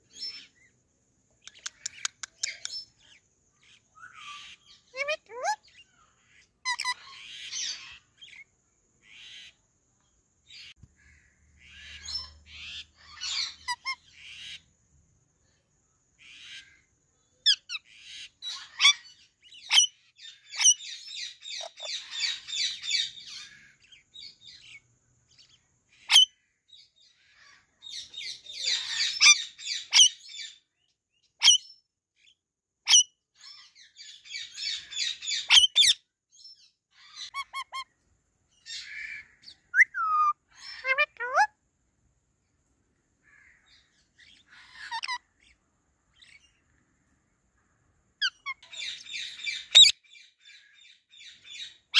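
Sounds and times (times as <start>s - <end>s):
sharp parakeet calls: 1.4s - 8.4s, 10.5s - 14.7s, 16.2s - 26.4s, 27.2s - 30.6s, 31.4s - 31.8s, 32.9s - 36.0s, 37.0s - 37.9s, 38.6s - 41.6s, 43.3s - 45.6s, 48.2s - 51.9s
parakeets chattering: 4.4s - 8.4s, 11.6s - 14.7s, 17.5s - 24.8s, 27.3s - 30.5s, 38.6s - 41.5s, 43.7s - 45.6s, 48.2s - 50.6s.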